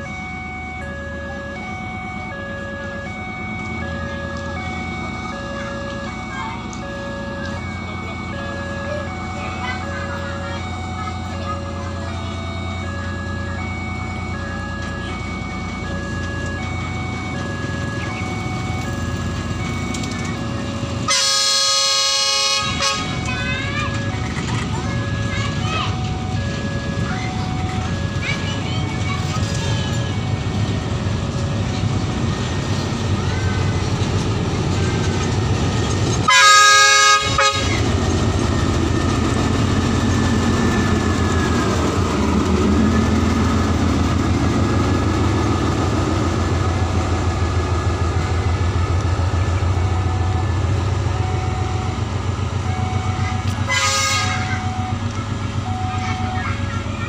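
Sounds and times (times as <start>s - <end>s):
diesel locomotive engine: 0.0s - 57.0s
train wheels rolling on rails: 0.0s - 57.0s
locomotive air horn: 21.0s - 24.1s, 36.2s - 37.9s, 53.6s - 55.0s.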